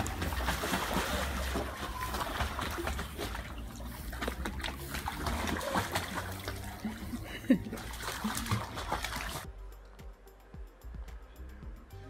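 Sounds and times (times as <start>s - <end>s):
dog splashing in water: 0.0s - 9.5s.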